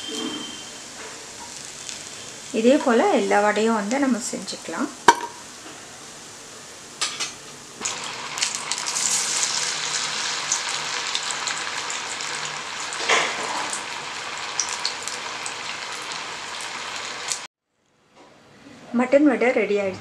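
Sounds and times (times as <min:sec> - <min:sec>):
food sizzling in hot oil: 0:00.0 - 0:17.5.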